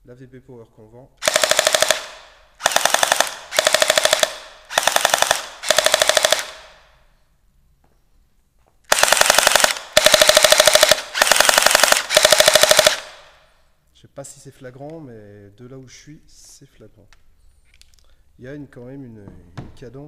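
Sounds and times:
airsoft pistol bursts: 0:01.2 - 0:06.9, 0:08.9 - 0:13.4.

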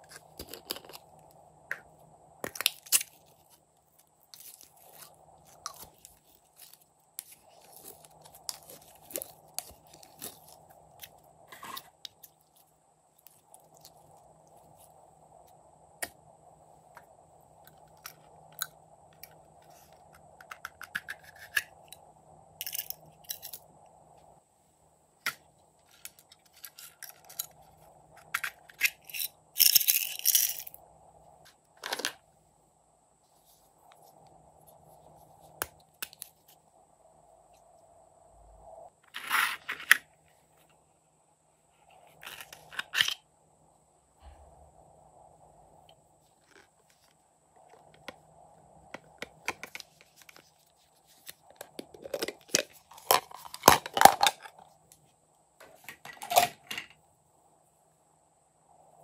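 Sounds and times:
plastic containers clicking and rattling: 0:51.5 - 0:54.6.

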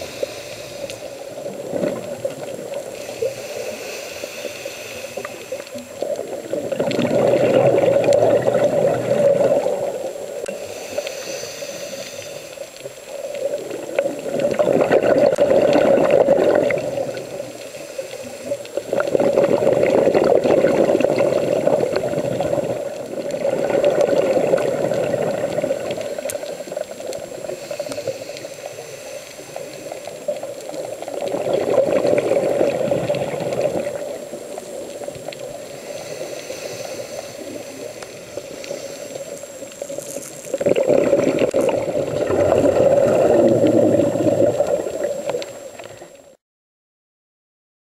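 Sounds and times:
diver's exhaled bubbles rushing: 0:01.3 - 0:03.0, 0:06.0 - 0:10.3, 0:13.4 - 0:17.5, 0:18.8 - 0:27.6, 0:30.7 - 0:36.0, 0:39.6 - 0:46.2.

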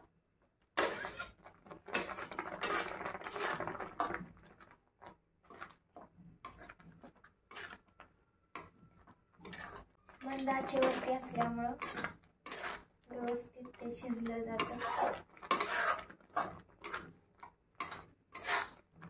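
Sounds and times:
metal spatula scraping a pan: 0:00.8 - 0:04.4, 0:06.4 - 0:08.0, 0:08.6 - 0:17.2, 0:17.8 - 0:19.0.

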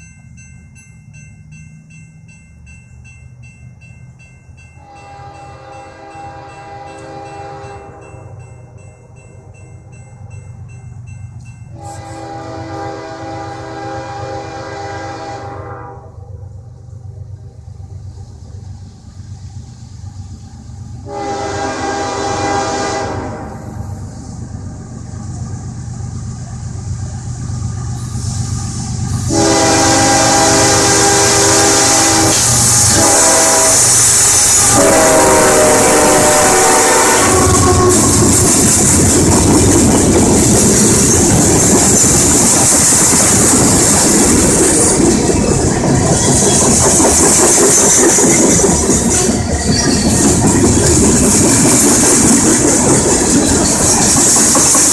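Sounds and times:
diesel locomotives rumbling: 0:00.0 - 0:54.9
train air horn blasts: 0:04.8 - 0:08.3, 0:11.8 - 0:16.3, 0:21.0 - 0:24.0, 0:29.1 - 0:38.6
wheel-on-rail rush: 0:37.2 - 0:54.9.

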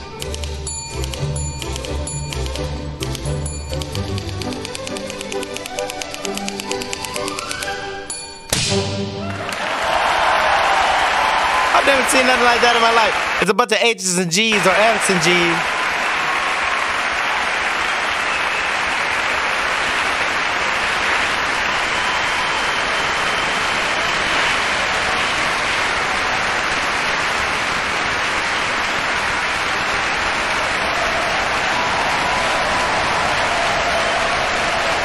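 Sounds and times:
audience applauding: 0:09.2 - 0:35.0.

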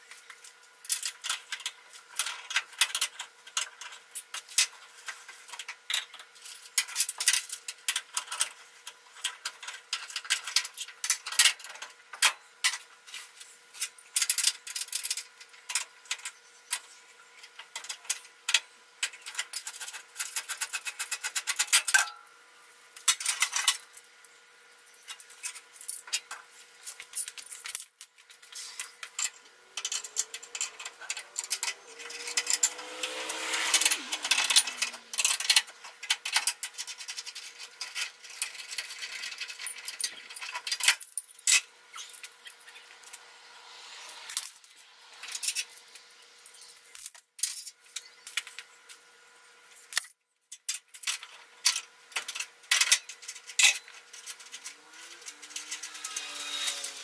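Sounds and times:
rough metal scraping: 0:28.5 - 0:36.0, 0:54.1 - 0:57.0.

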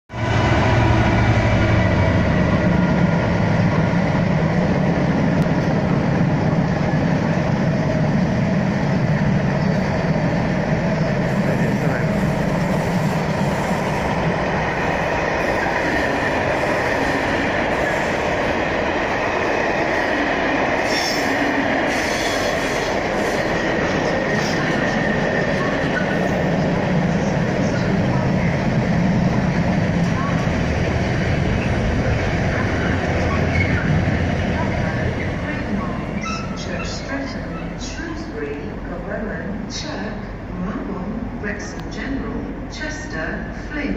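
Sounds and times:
diesel locomotive engine rumble: 0:00.1 - 0:43.9
freight train rolling on rails: 0:00.1 - 0:43.9
high wheel squeal: 0:32.8 - 0:34.0, 0:36.2 - 0:37.0.

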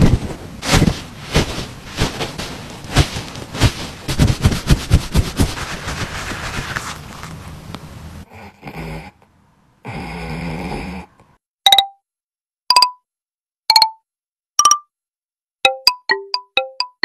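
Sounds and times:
cloth rubbing and patting fur: 0:00.0 - 0:08.2
dog snoring: 0:08.2 - 0:11.2.

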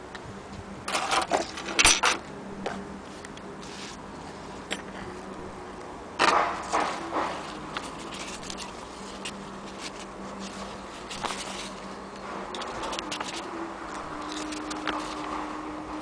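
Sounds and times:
paper pages rustling and turning: 0:03.1 - 0:04.0, 0:06.2 - 0:15.5.

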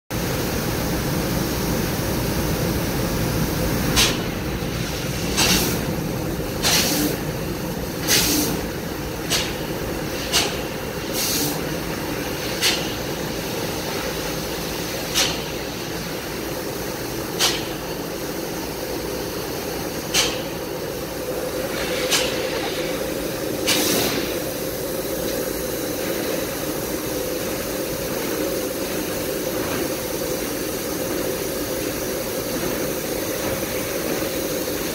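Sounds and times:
hissing bursts from laser cutter: 0:06.5 - 0:07.2, 0:07.9 - 0:34.9.

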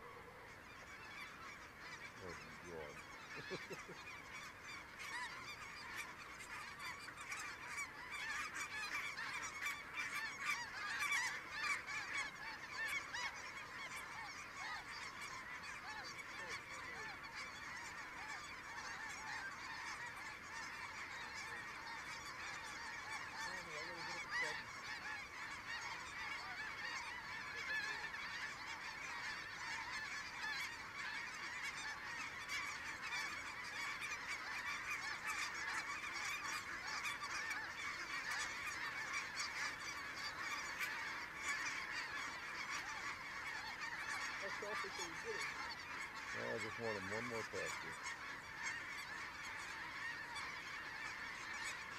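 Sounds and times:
geese honking: 0:00.0 - 0:51.9.

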